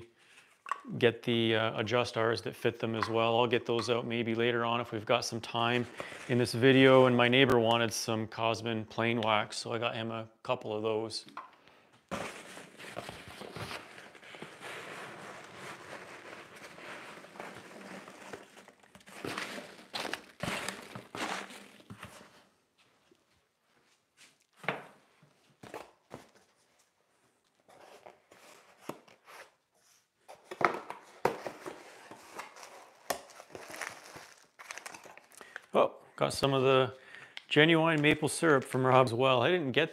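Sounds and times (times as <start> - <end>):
cardboard and packing rustling: 12.0 - 35.4.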